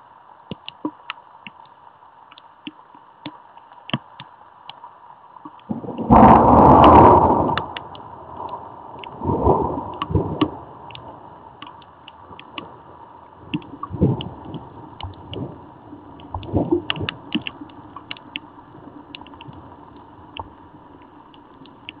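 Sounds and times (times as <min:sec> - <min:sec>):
raindrops ticking on plastic: 0:00.4 - 0:22.0
loud thunder: 0:05.7 - 0:07.8
soft thunder rumbles: 0:05.7 - 0:11.5, 0:13.4 - 0:18.0.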